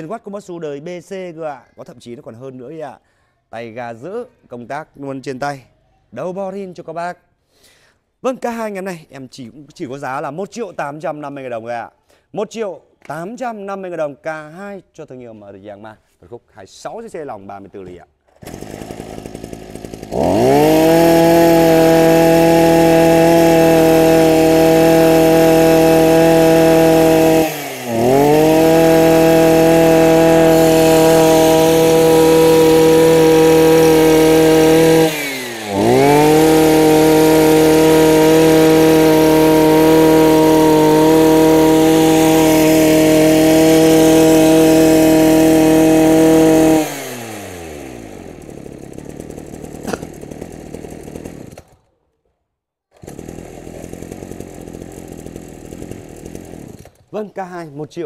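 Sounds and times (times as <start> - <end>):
brush cutter engine revving: 17.8 - 51.9, 52.9 - 58.0.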